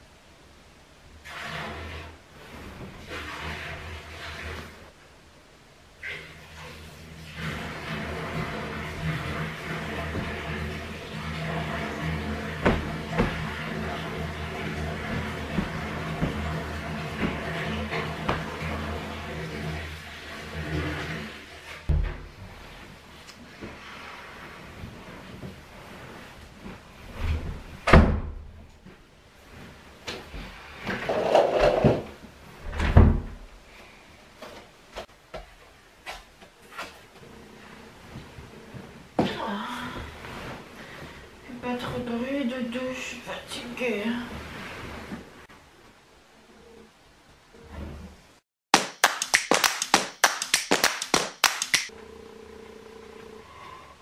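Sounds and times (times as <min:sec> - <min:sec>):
rapid handclaps: 0:48.7 - 0:51.9.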